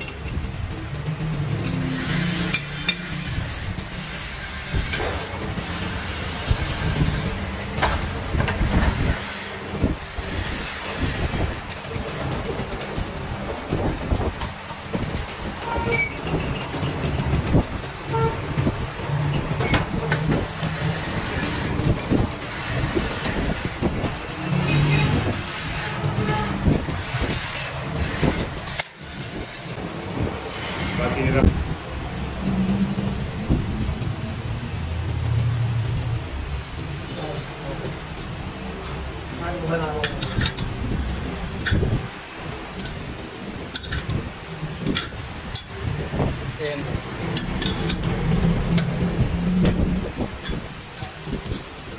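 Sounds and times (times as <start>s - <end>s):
metallic knocks and scraping: 0.0s - 29.8s, 40.0s - 40.9s, 41.5s - 42.1s, 42.7s - 43.0s, 43.6s - 45.8s, 47.2s - 51.8s.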